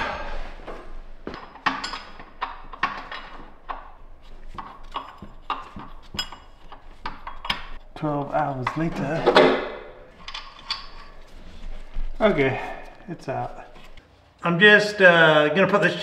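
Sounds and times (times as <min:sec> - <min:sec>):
hand tools clinking on metal: 0:01.3 - 0:09.5.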